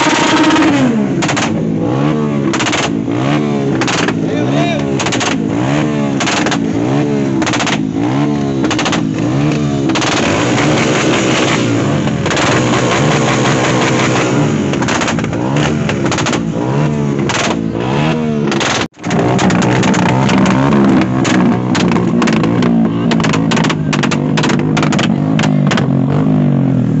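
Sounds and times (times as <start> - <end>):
exhaust pops and bangs: 0.0 - 1.7, 2.4 - 26.3
motorcycle engine revving: 0.0 - 27.0.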